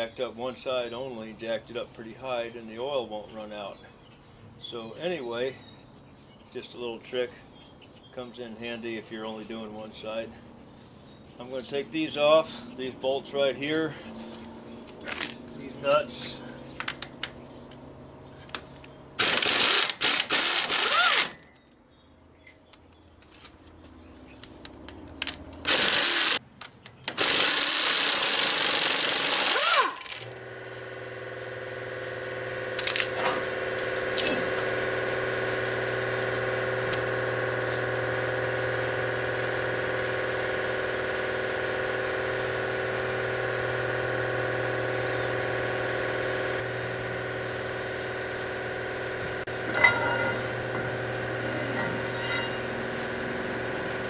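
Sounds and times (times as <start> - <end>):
pneumatic impact wrench hammering: 19.2 - 21.4, 25.2 - 26.4, 27.0 - 54.0
machine hum with steady tones: 27.2 - 54.0.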